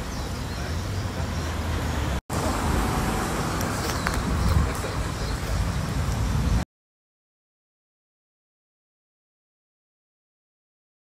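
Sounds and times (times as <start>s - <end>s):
roadside traffic rumble: 0.0s - 6.7s
wind buffeting microphone: 2.5s - 6.6s.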